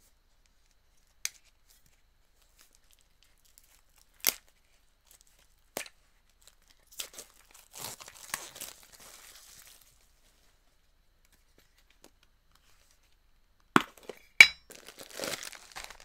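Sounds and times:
plastic packaging crinkling: 6.4s - 10.2s, 13.9s - 16.0s.

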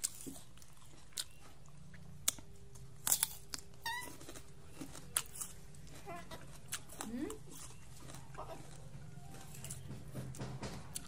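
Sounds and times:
monkey chirp: 3.8s - 4.2s.

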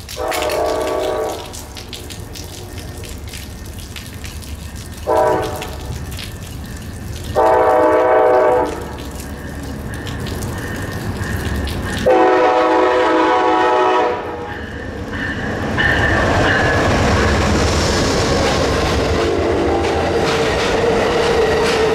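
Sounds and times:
train rumble: 0.0s - 21.9s
locomotive air horn blasts: 0.2s - 1.5s, 5.1s - 5.8s, 7.4s - 8.9s, 12.0s - 14.5s.

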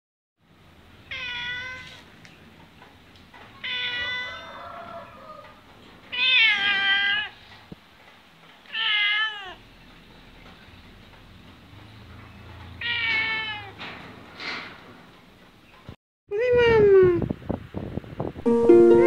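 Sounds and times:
cat meowing: 1.1s - 2.0s, 3.6s - 4.6s, 6.1s - 7.4s, 8.7s - 9.6s, 12.8s - 13.8s.

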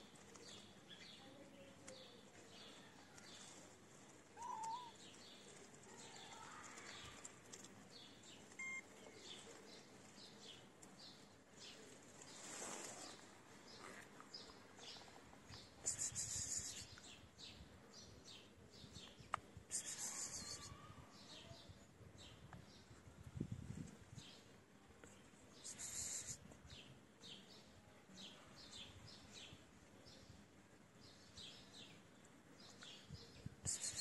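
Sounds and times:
small birds chirping: 0.0s - 34.0s
short bursts of high hissing: 15.8s - 16.9s, 19.8s - 20.7s, 25.6s - 26.4s, 33.7s - 34.0s.

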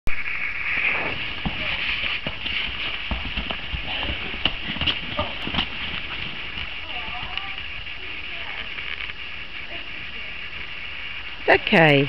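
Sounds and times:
horse hooves clopping on asphalt: 1.2s - 8.9s.

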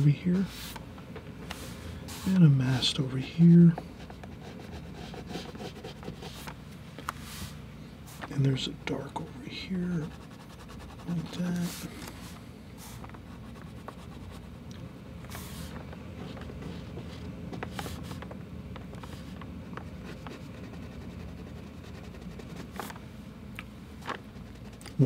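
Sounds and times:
low background hum: 0.0s - 25.0s
marker scratching on paper: 4.0s - 6.5s, 10.0s - 11.9s, 12.8s - 14.5s, 19.0s - 23.0s, 24.3s - 25.0s.

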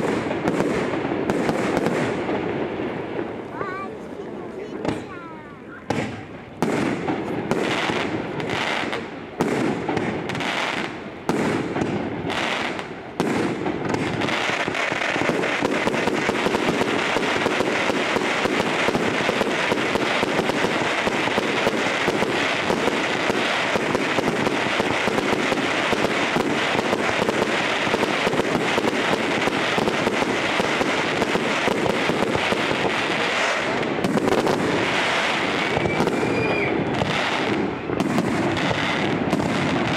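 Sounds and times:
fireworks bursting: 0.0s - 39.9s
fireworks crackling: 0.0s - 39.9s.

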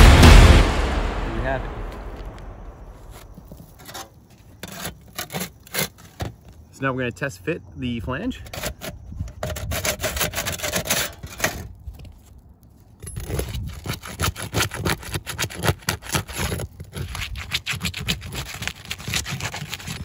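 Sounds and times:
metal bar scraping roof shingles: 3.2s - 6.4s, 8.4s - 11.7s.

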